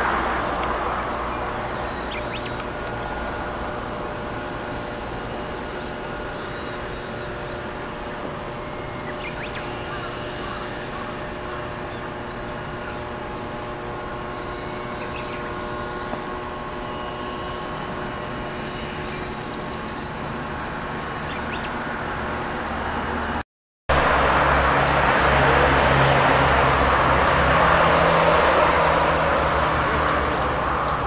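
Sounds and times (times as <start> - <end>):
broad noise: 0.0 - 31.0
steady mechanical hum: 0.0 - 31.0
bird chirps: 1.1 - 3.0, 8.6 - 11.0, 14.4 - 16.3, 21.2 - 21.8, 26.2 - 26.8, 30.0 - 31.0.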